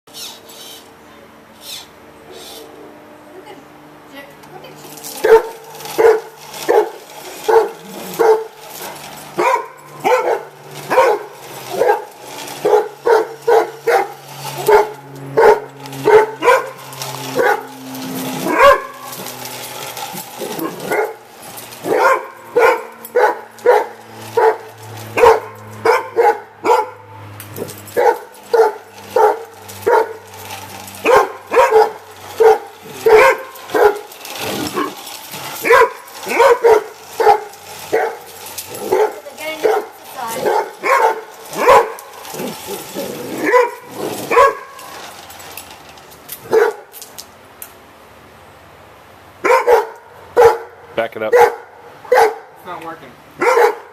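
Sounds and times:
dogs barking: 5.2 - 17.8, 18.4 - 19.2, 20.2 - 21.2, 21.8 - 30.4, 31.0 - 44.8, 46.4 - 46.9, 49.4 - 52.6, 53.4 - 53.9.

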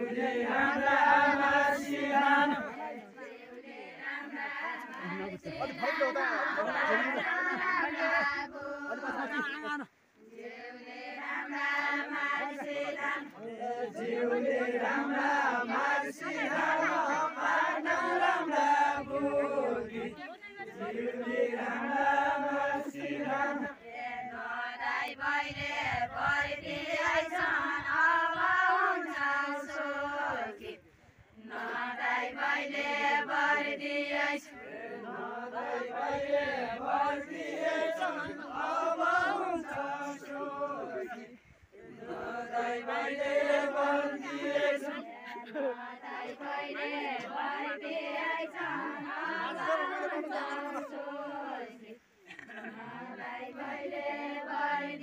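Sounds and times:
women singing folk song: 0.0 - 55.0.

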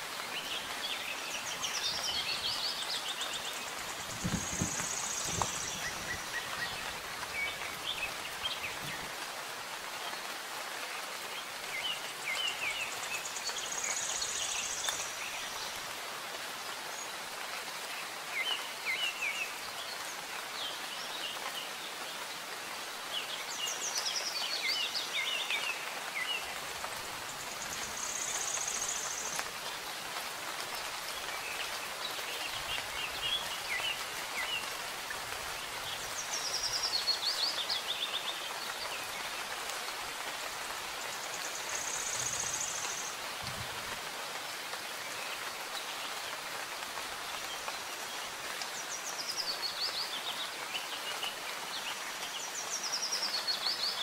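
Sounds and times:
soft rain hiss: 0.0 - 54.0
songbirds chirping and trilling: 0.1 - 9.3.

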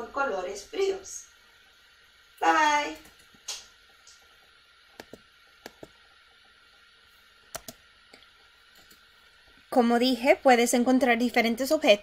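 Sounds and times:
faint room hiss: 0.0 - 12.0
computer mouse clicking: 5.0 - 6.0, 7.5 - 9.0.

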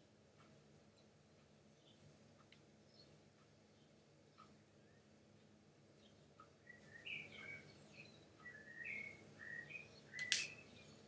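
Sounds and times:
faint bird chirps: 0.9 - 2.1, 2.8 - 5.2, 5.9 - 11.0.

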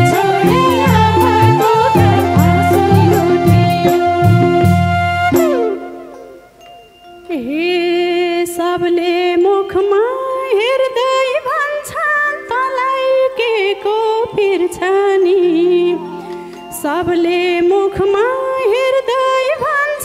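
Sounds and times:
sparse drum beats: 0.0 - 5.8
held low notes: 0.0 - 6.3
sliding melodic line with vibrato: 0.0 - 8.4.

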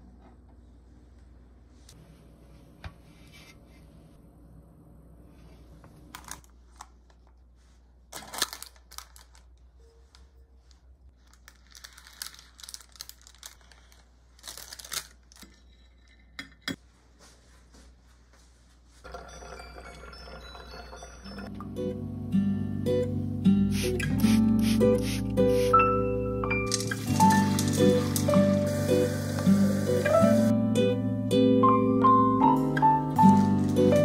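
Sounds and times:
parchment paper crinkling and tearing: 8.1 - 9.6, 11.2 - 15.4, 26.7 - 29.3, 33.2 - 34.0
acoustic guitar music: 19.1 - 34.0
water running into plastic can: 26.7 - 30.5.

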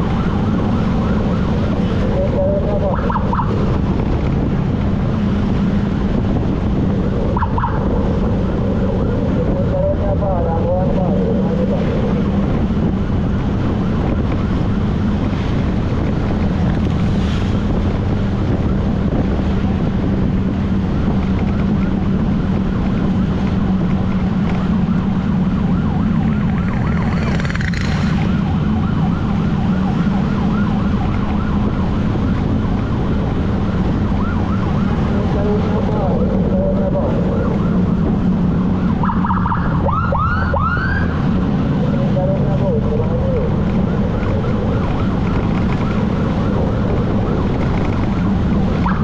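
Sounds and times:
siren yelping: 0.0 - 49.0
wind rush: 0.0 - 49.0
motorcycle engine: 20.3 - 32.9.

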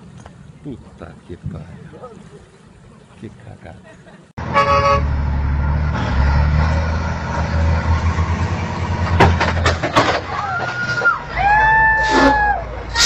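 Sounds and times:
diesel engines droning: 4.4 - 13.0
sharp collision cracks: 9.0 - 11.2.

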